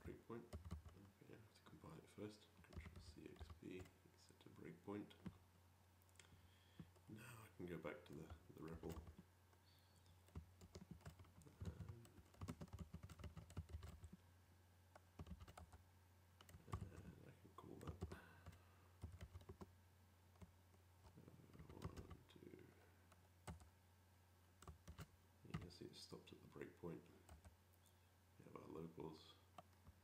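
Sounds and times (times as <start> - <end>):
low steady hum: 0.0 - 30.0
typing on computer keyboard: 0.5 - 1.0, 8.2 - 9.2, 10.2 - 14.2, 15.0 - 15.8, 16.4 - 16.9, 17.8 - 19.7, 21.5 - 22.2, 23.4 - 23.7, 24.6 - 25.6.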